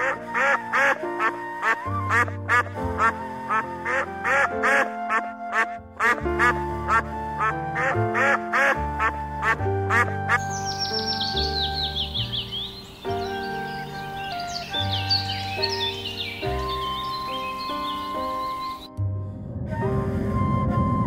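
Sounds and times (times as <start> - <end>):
ducks quacking: 0.0 - 17.2
background music: 0.0 - 21.0
high bird chirps: 10.3 - 19.0.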